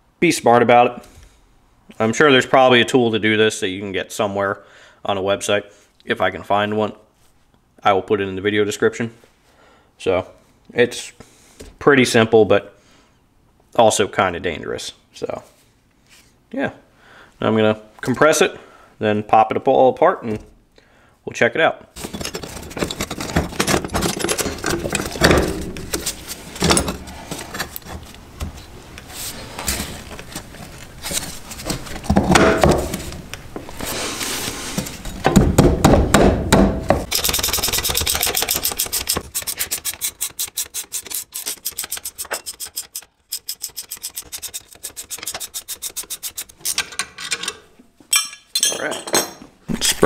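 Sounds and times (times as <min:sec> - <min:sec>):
metal clunks and scraping: 0:22.0 - 0:28.6, 0:46.3 - 0:49.6
wrench clicking rapidly: 0:37.1 - 0:46.9.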